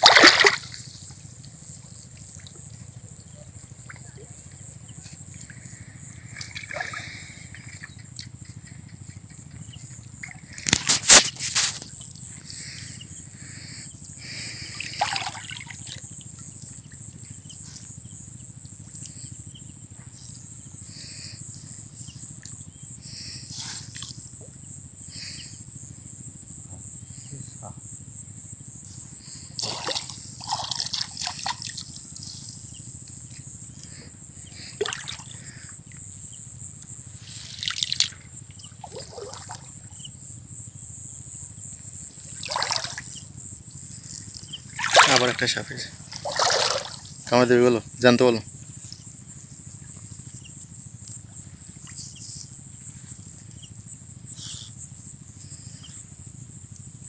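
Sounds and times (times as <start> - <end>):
water splashes: 0.0 - 0.8, 6.3 - 7.8, 14.4 - 16.0, 29.6 - 31.8, 34.8 - 35.4, 38.8 - 39.8, 42.4 - 43.2, 44.7 - 47.5.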